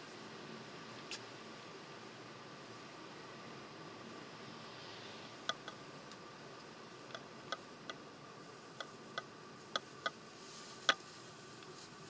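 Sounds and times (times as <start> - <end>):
car cabin hiss: 2.6 - 5.7, 8.4 - 12.0
sharp clicks: 5.4 - 8.0.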